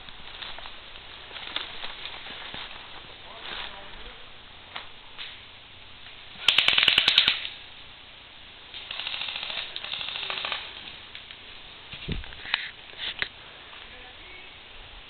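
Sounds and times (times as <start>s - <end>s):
airsoft guns firing full auto: 6.4s - 7.6s, 8.8s - 10.7s.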